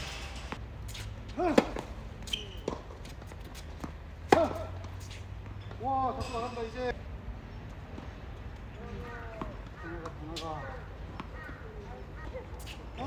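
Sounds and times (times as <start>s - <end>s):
racket hitting tennis ball: 0.0s - 5.2s
tennis ball bouncing: 0.5s - 5.8s.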